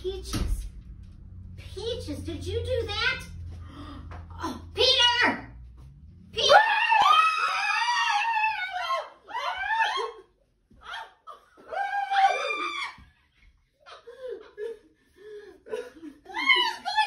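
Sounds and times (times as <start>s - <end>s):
woman screaming: 6.4s - 13.0s, 16.3s - 17.0s.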